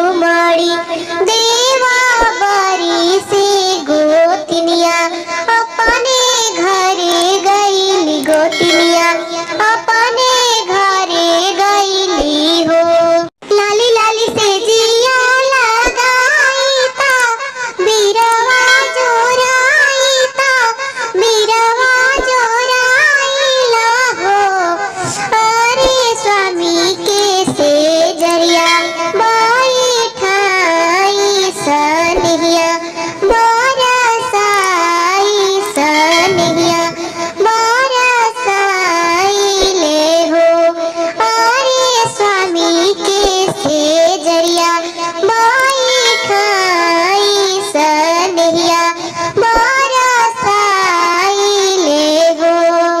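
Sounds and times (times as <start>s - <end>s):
person singing high folk song: 13.6s - 53.0s.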